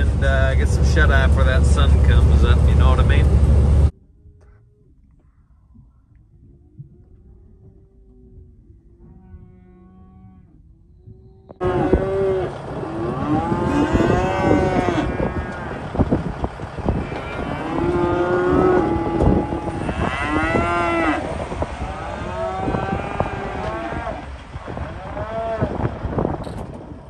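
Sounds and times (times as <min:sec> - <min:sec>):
cattle mooing: 0:11.6 - 0:26.3.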